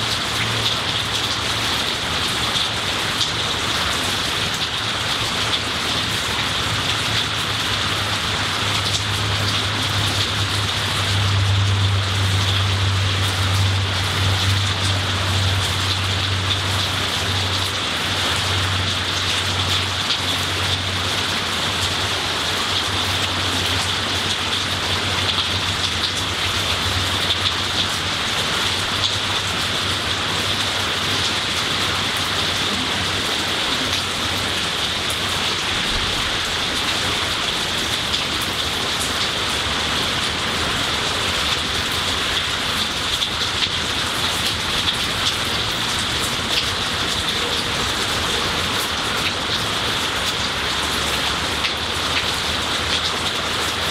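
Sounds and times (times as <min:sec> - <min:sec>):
rain falling on leaves: 0:00.0 - 0:53.9
raindrops pattering: 0:00.0 - 0:53.9.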